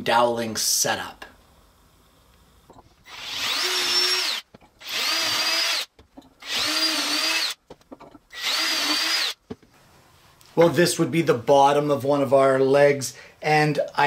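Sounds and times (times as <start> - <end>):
cordless drill boring into wood: 3.0 - 7.6, 8.3 - 9.4.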